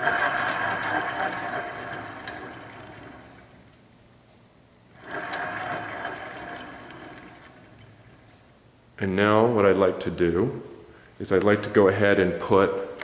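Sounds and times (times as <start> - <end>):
barbell sleeve whirring: 0.0 - 3.9, 4.9 - 8.6.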